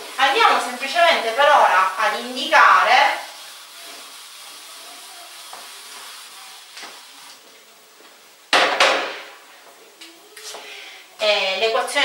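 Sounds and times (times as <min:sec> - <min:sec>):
sharp knock: 0:08.5 - 0:09.3.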